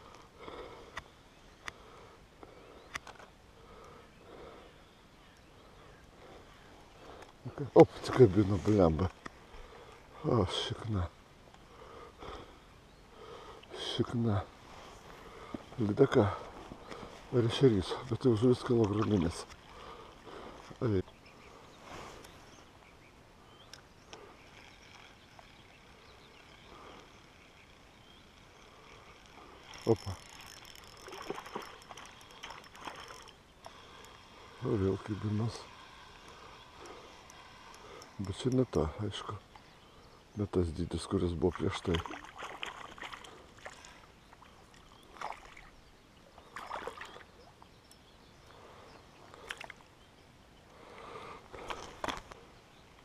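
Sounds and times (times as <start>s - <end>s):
light clicks: 2.9s - 4.0s, 23.6s - 25.5s, 36.2s - 38.9s
bird chirps: 21.0s - 41.2s, 43.8s - 50.8s
water sloshing: 28.7s - 33.8s, 41.4s - 45.8s, 46.5s - 47.3s.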